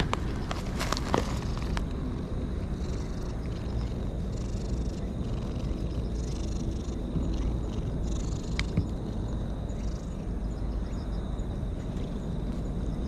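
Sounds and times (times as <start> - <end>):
cat purring: 0.0 - 10.4.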